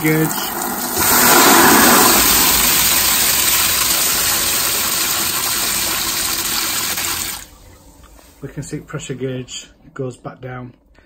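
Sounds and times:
water rushing and hissing: 0:00.0 - 0:08.4.

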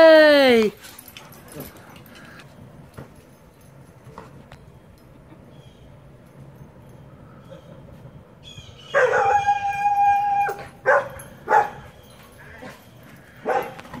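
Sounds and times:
dog howling: 0:08.8 - 0:11.8
dog barking: 0:08.9 - 0:09.5, 0:10.8 - 0:11.9, 0:13.4 - 0:13.8.

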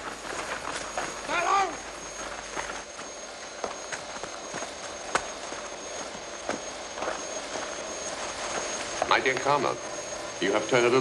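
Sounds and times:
footsteps on hard ground: 0:00.0 - 0:10.4.

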